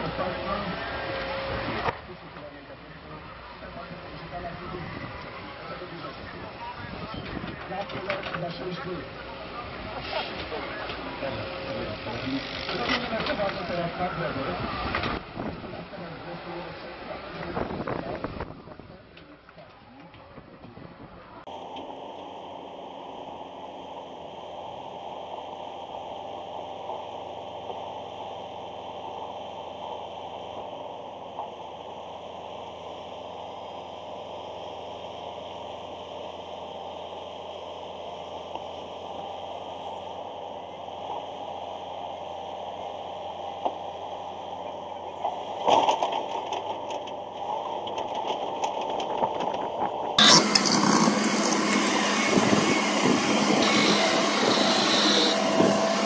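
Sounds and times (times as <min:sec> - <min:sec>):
excavator diesel engine humming: 0:21.2 - 0:56.0
loud harsh excavator engine: 0:21.5 - 0:56.0.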